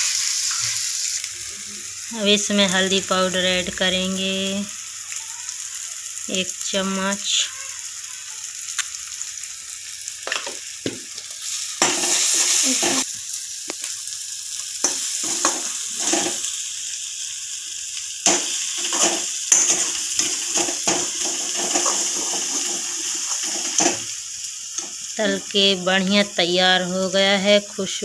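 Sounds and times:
spices sizzling in oil: 0.0s - 28.0s
steel spoon scraping a pan: 11.4s - 13.0s, 14.8s - 16.5s, 18.3s - 24.1s.

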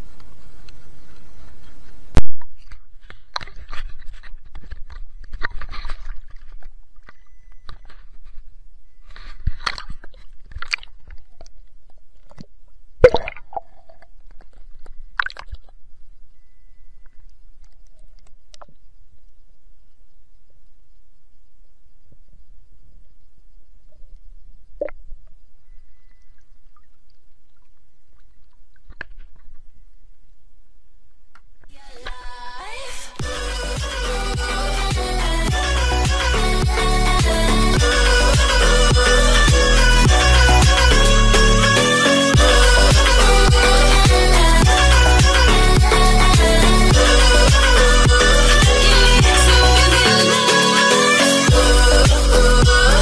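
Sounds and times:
faint steady high tone: 7.0s - 9.5s, 16.0s - 27.0s
faint underwater clicks: 17.0s - 21.8s, 23.0s - 29.8s.

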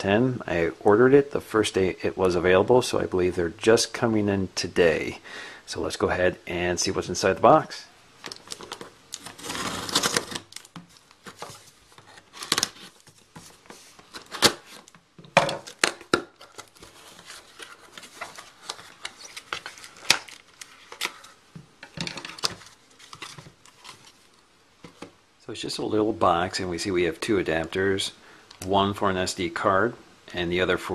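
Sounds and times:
scissors cutting packing tape: 9.2s - 10.7s.

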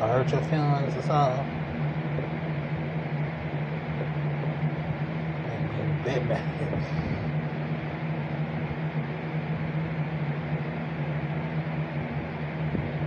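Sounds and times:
machine hum with hiss: 0.0s - 13.0s.

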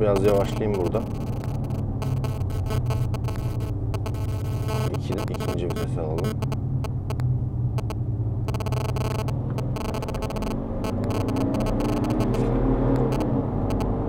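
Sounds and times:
simulated engine note from speakers: 0.0s - 14.0s
diesel engine accelerating: 6.4s - 14.0s.

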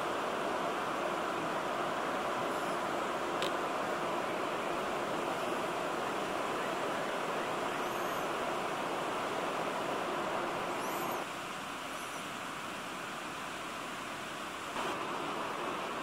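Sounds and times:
faint high chirps: 10.8s - 11.2s.

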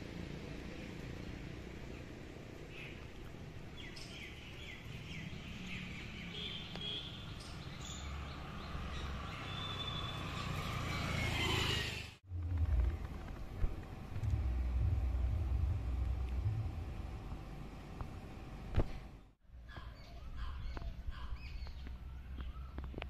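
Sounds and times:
birds chirping: 3.7s - 11.2s, 19.2s - 23.0s
low steady rumble: 12.2s - 19.3s.

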